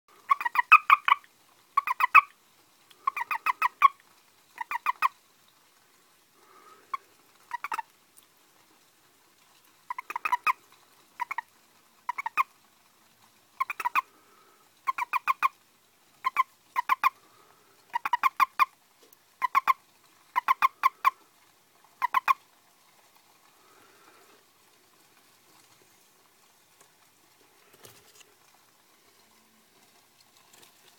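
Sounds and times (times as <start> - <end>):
toad croaking buzzy calls: 0.2 - 5.2, 6.5 - 7.9, 9.8 - 12.6, 13.6 - 15.6, 16.2 - 18.8, 19.4 - 21.3, 22.0 - 22.5.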